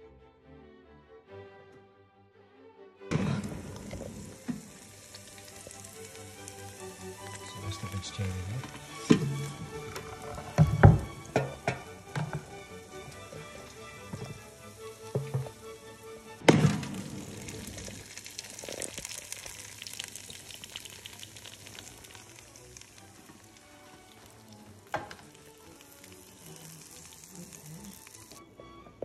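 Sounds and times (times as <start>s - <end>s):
loud thunk: 3.1s - 4.6s, 16.5s - 17.1s
food sizzling in air fryer: 3.1s - 28.4s.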